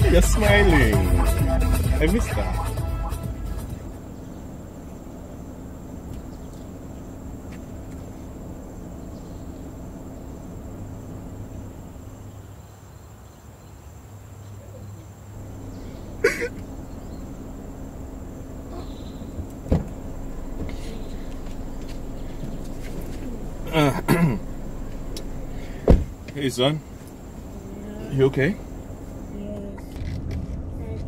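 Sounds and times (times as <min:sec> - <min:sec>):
low steady background hum: 0:03.2 - 0:31.0
man sobbing: 0:16.2 - 0:16.6, 0:23.2 - 0:24.5.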